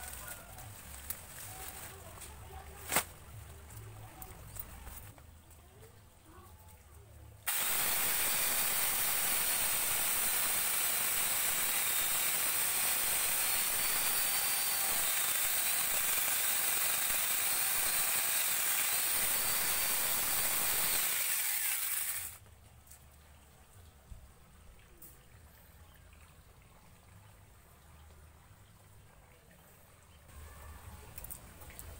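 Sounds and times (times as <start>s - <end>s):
angle grinder chainsaw cutting wood: 7.5s - 22.4s.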